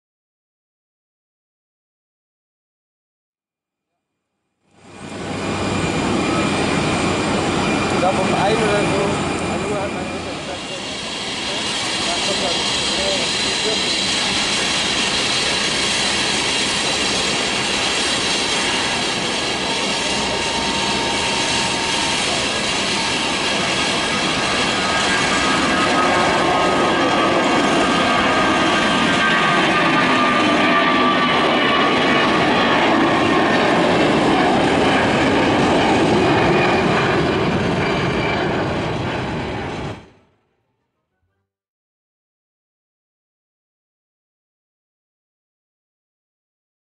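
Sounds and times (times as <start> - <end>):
jet engines roaring at takeoff: 4.7 - 40.2.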